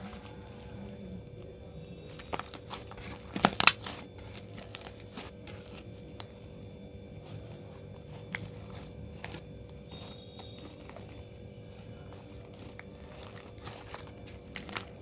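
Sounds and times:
slime crackling and snapping: 2.0 - 6.4, 12.1 - 15.0.

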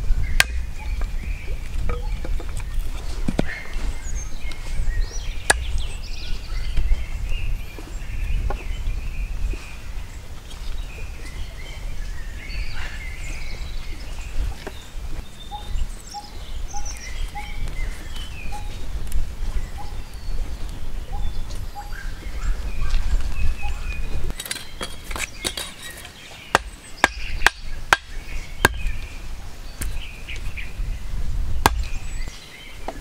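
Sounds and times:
wind rumble on microphone: 0.0 - 25.7, 26.6 - 33.0
birds chirping and calling: 0.0 - 33.0
machete knocking on wood: 31.7 - 31.9.

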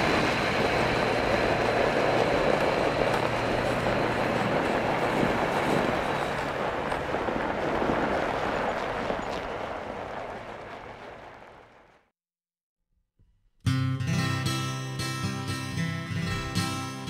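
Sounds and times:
truck passing on snowy road: 0.0 - 12.1.

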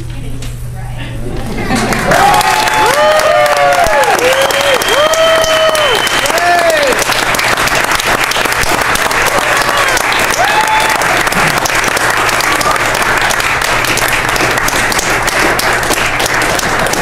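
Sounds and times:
crowd applauding: 1.8 - 17.0
voices whooping: 2.1 - 7.0, 9.1 - 11.3.

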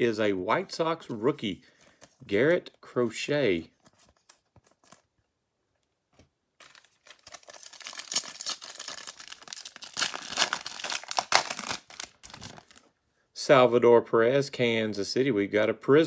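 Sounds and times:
foil wrapper tearing and crinkling: 6.6 - 12.8.

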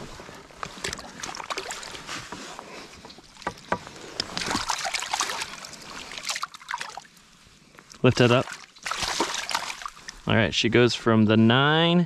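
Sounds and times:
water splashing in a net: 0.8 - 2.0, 4.3 - 7.1, 8.2 - 10.2.

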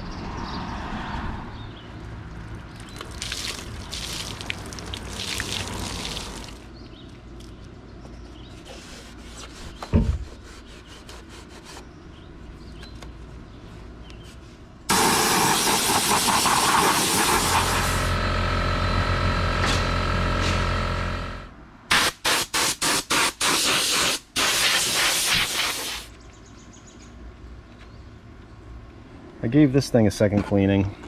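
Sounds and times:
handling and scraping noises: 7.0 - 11.9, 12.5 - 14.8
air blow gun hissing: 14.9 - 18.2, 21.9 - 26.1.

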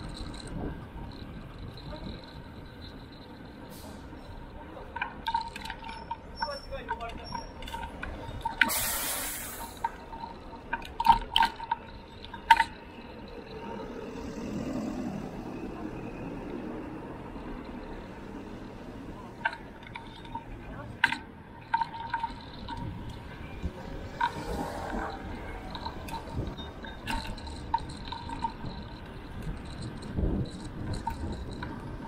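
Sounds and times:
sharp rattles and clicks: 0.0 - 14.9, 17.2 - 32.0
burst of hiss: 8.7 - 9.8.

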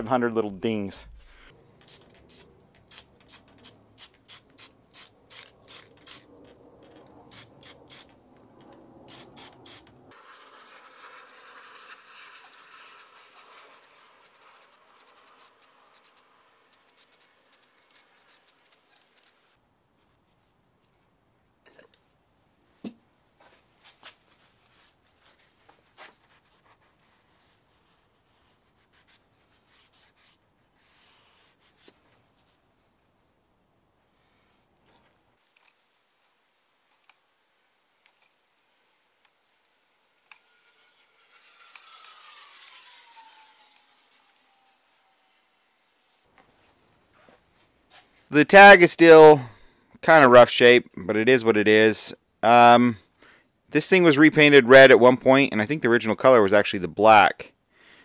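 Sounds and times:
aerosol spray can spurts: 1.8 - 6.3, 6.9 - 8.1, 9.1 - 19.6.

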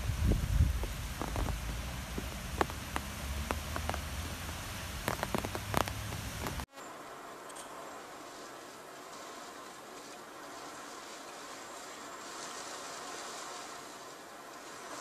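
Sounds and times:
raindrops splashing close by: 0.0 - 6.7
rain hissing: 0.0 - 15.0.

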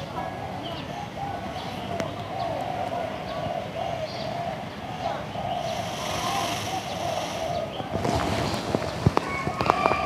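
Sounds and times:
low wavering bird call: 2.4 - 7.8.

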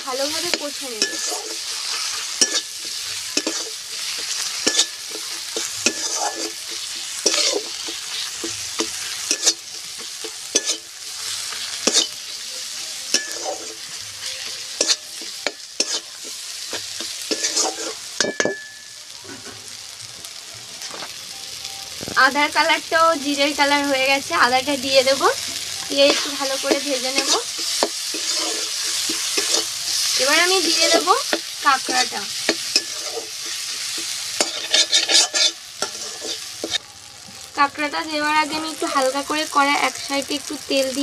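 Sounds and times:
spices sizzling in oil: 0.0 - 41.0
metal spatula scraping a pan: 0.2 - 18.4, 25.4 - 36.8.

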